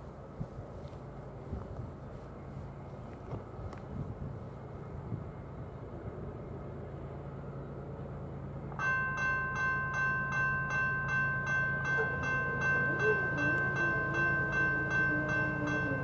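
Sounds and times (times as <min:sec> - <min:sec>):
diesel locomotive hum: 0:00.0 - 0:16.0
crossing warning bell ringing: 0:08.8 - 0:16.0.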